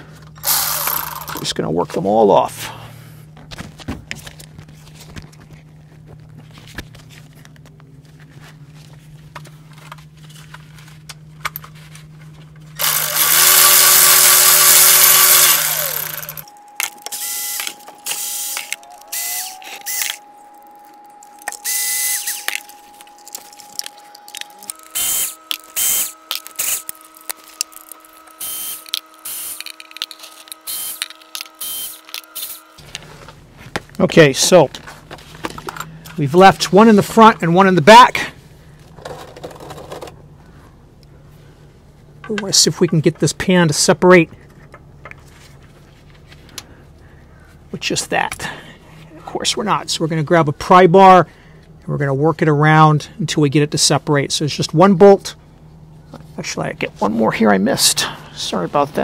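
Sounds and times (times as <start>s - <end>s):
steady background hum: 0.0s - 59.0s
electric ratchet spinning bolts: 0.4s - 1.5s, 12.8s - 20.2s, 21.4s - 22.7s, 23.8s - 32.8s.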